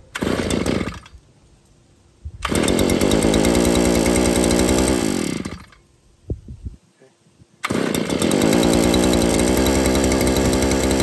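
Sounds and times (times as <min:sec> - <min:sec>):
recoil starter cranking: 0:00.1 - 0:01.1, 0:02.4 - 0:05.8, 0:07.6 - 0:11.0
small engine running: 0:00.1 - 0:01.1, 0:02.4 - 0:05.8, 0:07.6 - 0:11.0.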